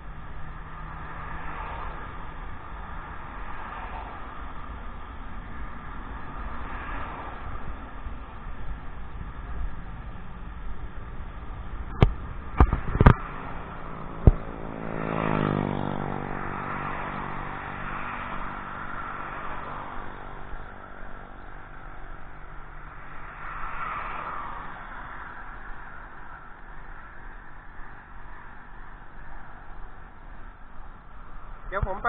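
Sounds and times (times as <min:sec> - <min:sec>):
vehicles passing: 0:00.0 - 0:32.0.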